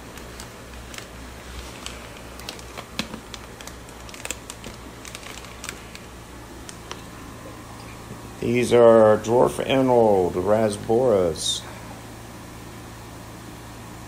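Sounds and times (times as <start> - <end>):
plastic bag crinkling: 0.0 - 7.2.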